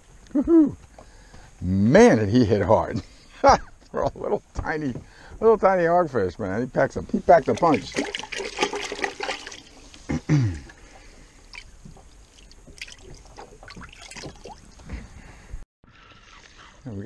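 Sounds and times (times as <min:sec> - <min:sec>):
water splashing in a bucket: 0:07.3 - 0:14.8
person grunting: 0:10.1 - 0:10.7.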